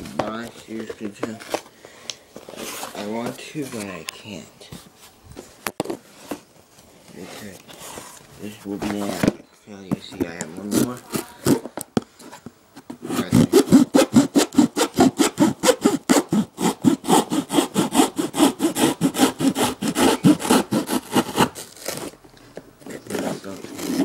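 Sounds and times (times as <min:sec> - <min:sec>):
saw cutting through cardboard: 0:13.0 - 0:22.2, 0:23.0 - 0:24.0.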